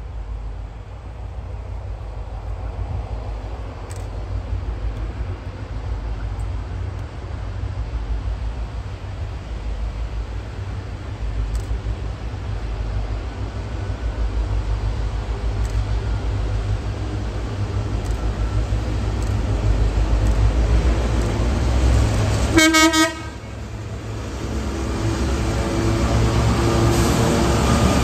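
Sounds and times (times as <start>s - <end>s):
diesel locomotive engines rumbling: 0.0s - 28.0s
locomotive horn blast: 22.4s - 23.6s.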